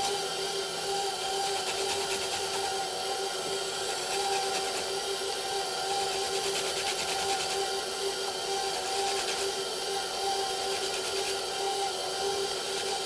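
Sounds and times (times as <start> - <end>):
stand mixer motor hum: 0.0 - 13.0
zester rasping on citrus peel: 1.3 - 2.8, 3.5 - 7.8, 8.5 - 13.0.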